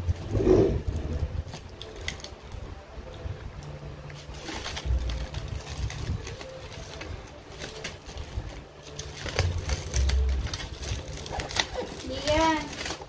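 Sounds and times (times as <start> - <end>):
plastic film peeling and crinkling: 0.0 - 13.0.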